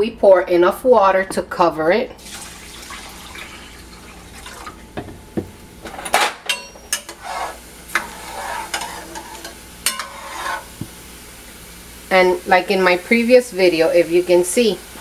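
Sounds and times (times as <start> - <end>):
spoon clinking against pot: 6.5 - 7.2, 8.7 - 10.5
metal spoon stirring rice in pot: 6.9 - 10.7.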